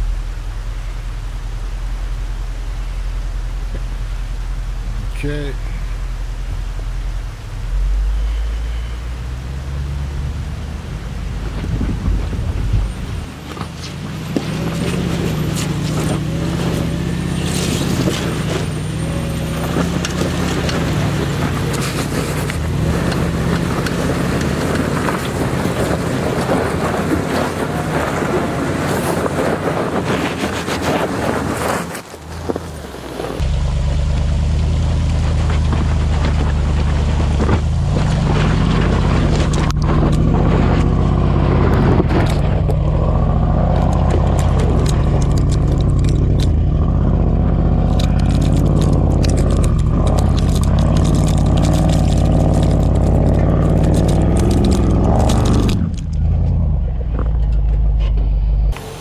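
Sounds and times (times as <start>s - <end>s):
car engine drone: 0.0s - 59.0s
tyres crunching over gravel: 8.0s - 59.0s
stones clattering against underside: 47.8s - 56.2s.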